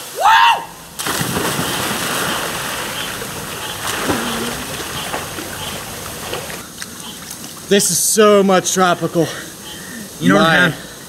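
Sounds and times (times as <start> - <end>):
water churning and sloshing: 0.0 - 8.2
person splashing into pool: 1.0 - 6.6.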